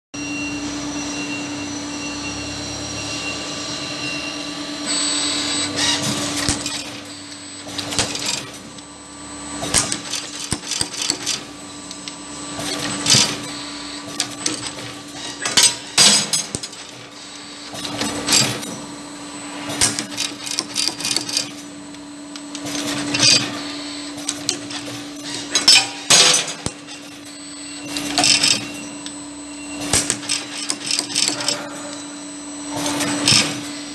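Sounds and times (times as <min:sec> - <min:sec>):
machine humming: 0:00.2 - 0:33.9
wire bending machine clatter: 0:05.4 - 0:08.9, 0:09.6 - 0:18.9, 0:19.6 - 0:33.9.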